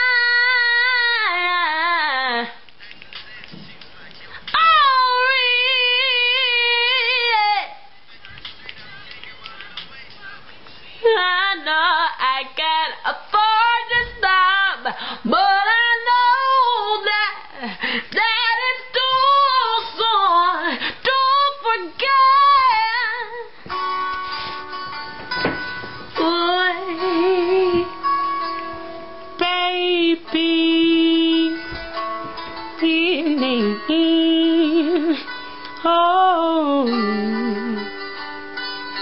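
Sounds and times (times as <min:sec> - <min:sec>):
woman singing unaccompanied: 0:00.0 - 0:02.7, 0:04.4 - 0:23.6, 0:26.1 - 0:28.1, 0:29.3 - 0:31.9, 0:32.6 - 0:38.0
instrumental music with held notes: 0:22.0 - 0:39.0.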